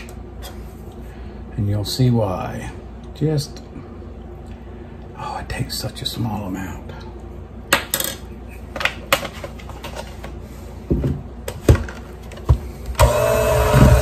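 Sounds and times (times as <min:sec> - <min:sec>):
electric hand mixer running: 0:13.0 - 0:14.0.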